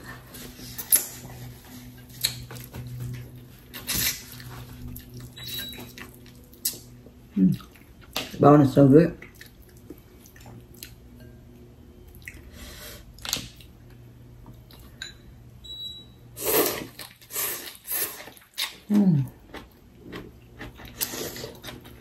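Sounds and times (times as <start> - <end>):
chewing: 16.8 - 22.0.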